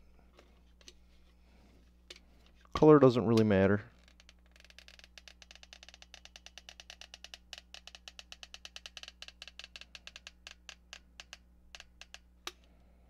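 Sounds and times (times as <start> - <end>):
caulk gun clicks and crackles: 3.4 - 12.7.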